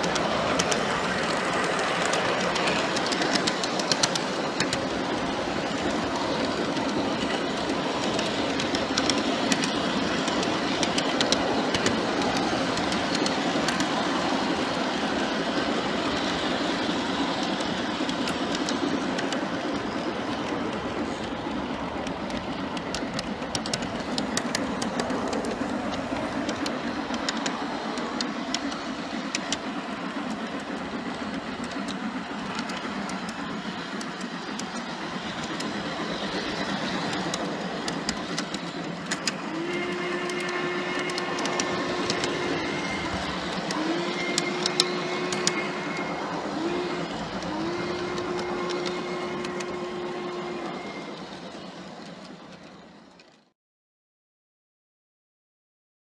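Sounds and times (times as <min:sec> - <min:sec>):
model train wheels rumbling: 0:00.0 - 0:53.5
steam whistle blasts: 0:39.5 - 0:51.2.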